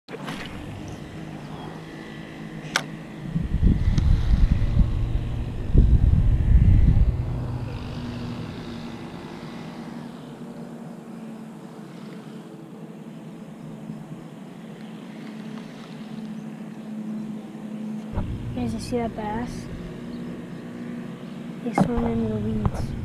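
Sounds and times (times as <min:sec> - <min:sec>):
wind buffeting microphone: 0:00.3 - 0:10.1, 0:18.1 - 0:23.0.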